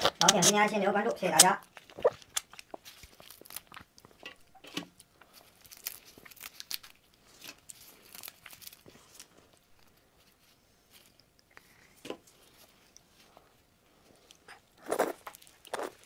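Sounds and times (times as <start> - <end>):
plastic gloves crinkling: 0.0 - 11.4
shrimp shell cracking: 5.5 - 8.8.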